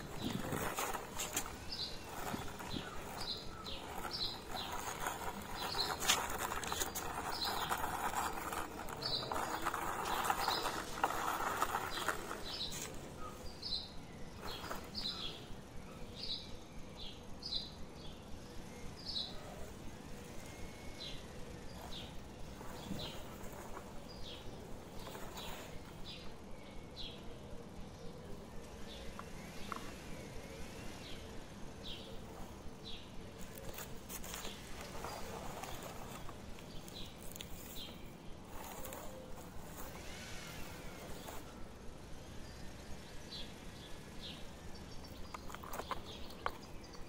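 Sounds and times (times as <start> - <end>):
rustling scraping noise: 0.0 - 13.7, 14.3 - 15.4, 21.7 - 26.3, 31.8 - 41.8, 45.1 - 47.0
small bird chirping: 0.0 - 47.0.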